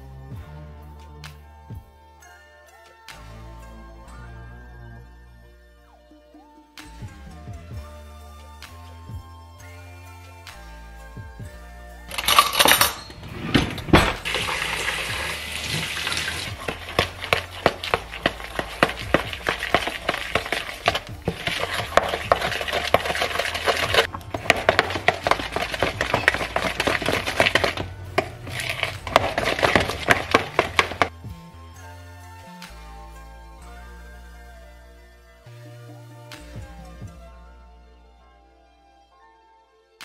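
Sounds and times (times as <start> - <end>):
utensil scraping plastic bowl: 12.1 - 31.1
flour pouring into bowl: 14.2 - 31.1.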